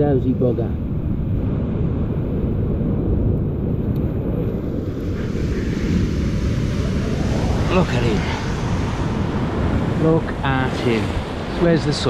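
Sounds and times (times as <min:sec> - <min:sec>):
wind buffeting microphone: 0:00.0 - 0:12.0
surf hissing: 0:04.5 - 0:12.0.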